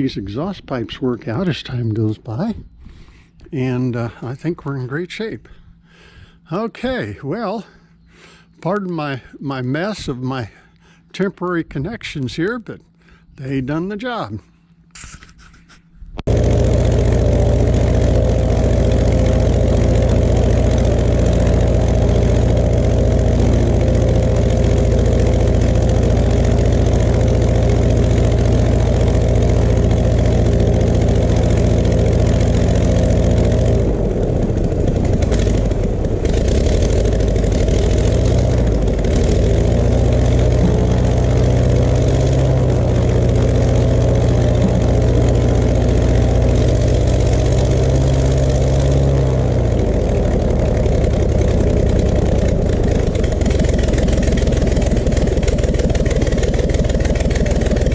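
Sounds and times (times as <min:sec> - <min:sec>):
aircraft engine running: 0:16.2 - 0:57.9.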